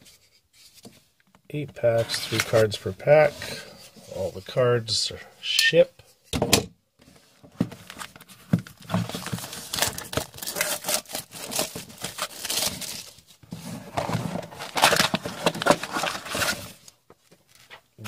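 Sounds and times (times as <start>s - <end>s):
plastic wrap tearing and crinkling: 8.7s - 13.2s, 14.0s - 16.9s.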